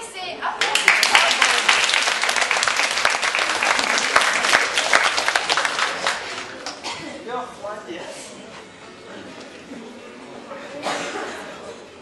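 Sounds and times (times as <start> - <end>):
audience applause: 0.6 - 6.8.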